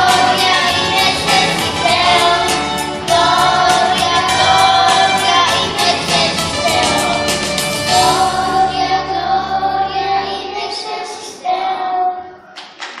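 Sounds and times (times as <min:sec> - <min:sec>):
low instrumental accompaniment: 0:00.0 - 0:10.6
children's choir singing a carol: 0:00.0 - 0:12.6.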